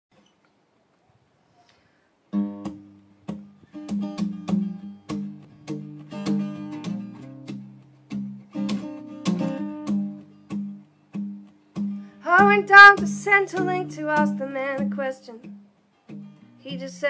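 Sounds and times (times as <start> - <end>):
acoustic guitar strummed chords: 2.3 - 17.0.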